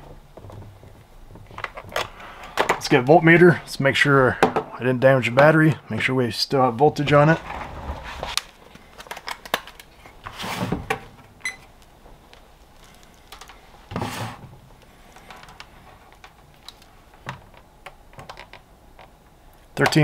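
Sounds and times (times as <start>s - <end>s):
rustles: 7.1s - 10.5s.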